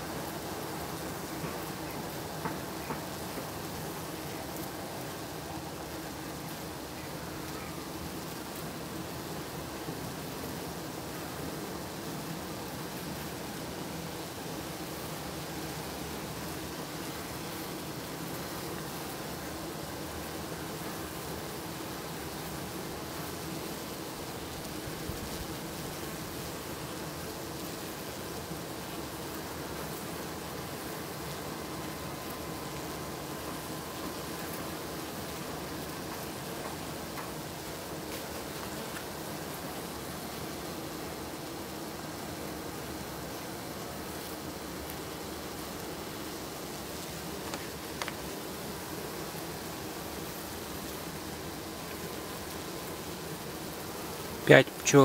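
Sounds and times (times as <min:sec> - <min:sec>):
honeybees droning: 0:00.0 - 0:55.0
faint clicks: 0:47.5 - 0:48.2.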